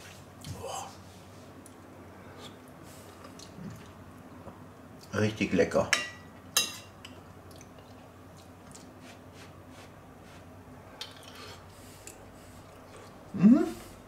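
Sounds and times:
man chewing food: 0:01.6 - 0:05.1, 0:07.0 - 0:09.5, 0:11.0 - 0:13.4.

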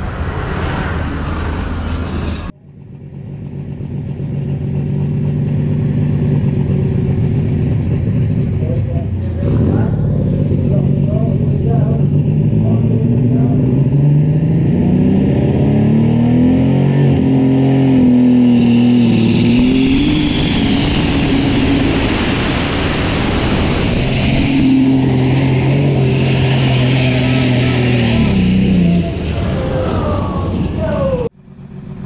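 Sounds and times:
diesel engine revving under load: 0:04.5 - 0:32.0
thin high whine: 0:18.4 - 0:30.1.

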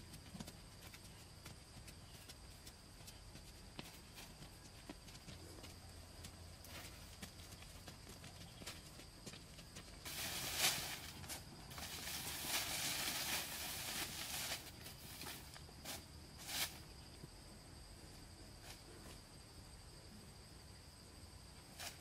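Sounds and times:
dry soil scraped by hand: 0:10.1 - 0:15.5.

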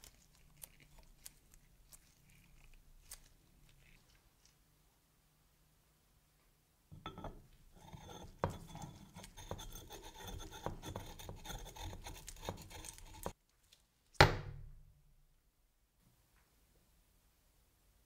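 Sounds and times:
metal threads scraping: 0:07.0 - 0:13.4.

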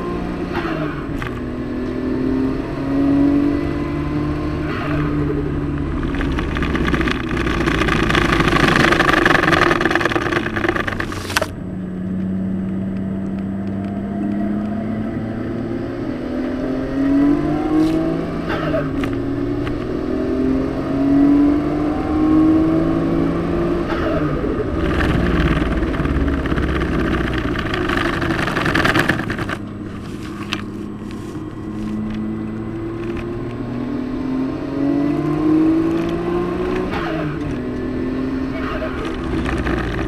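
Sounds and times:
car engine revving: 0:00.0 - 0:40.0
rush of noise: 0:03.9 - 0:11.5, 0:21.6 - 0:33.3.

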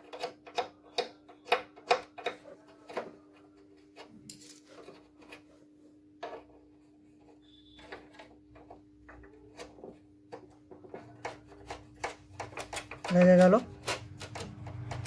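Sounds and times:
plastic parts clicking and tapping: 0:00.0 - 0:05.4, 0:07.6 - 0:15.0.

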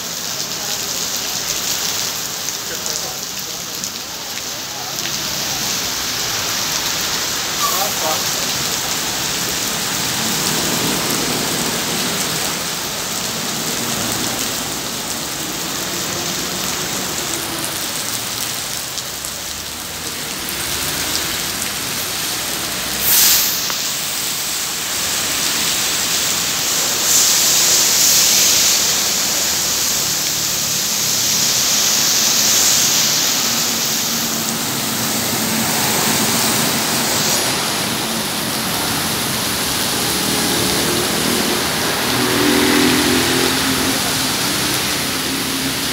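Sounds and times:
heavy rain on a street: 0:00.0 - 0:45.9
vehicles splashing through water: 0:00.0 - 0:45.9
bus engine humming: 0:22.4 - 0:45.9.

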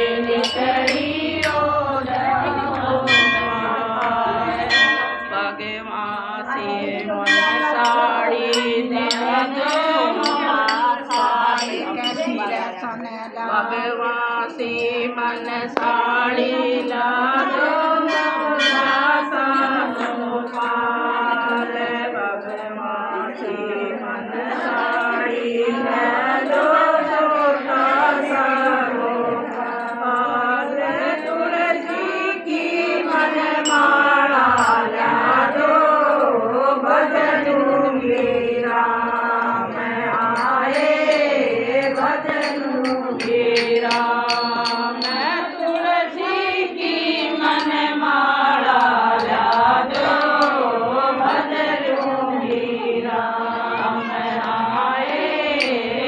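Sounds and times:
women singing in unison: 0:00.0 - 0:56.0
rhythmic sharp ticks: 0:00.2 - 0:03.3, 0:07.3 - 0:16.9, 0:39.0 - 0:45.9, 0:47.0 - 0:52.3, 0:54.4 - 0:56.0.

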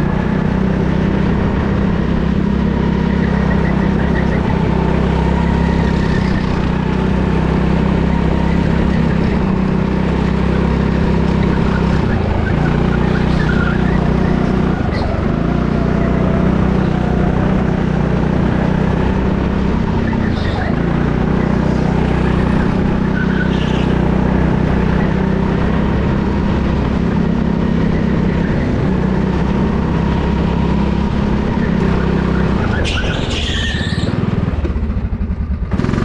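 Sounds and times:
go-kart motor running: 0:00.0 - 0:36.0.

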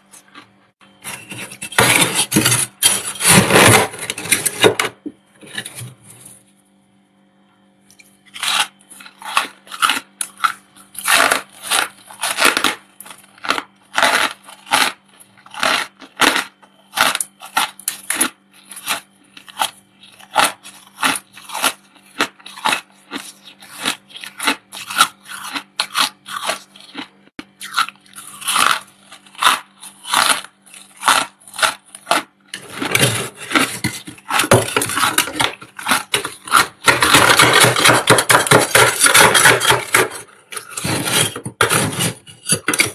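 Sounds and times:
scraper scraping frost: 0:01.0 - 0:04.7, 0:28.2 - 0:42.9.

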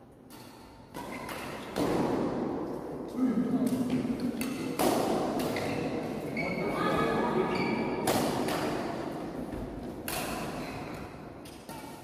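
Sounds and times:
badminton racket smacking shuttlecock: 0:09.9 - 0:12.0.

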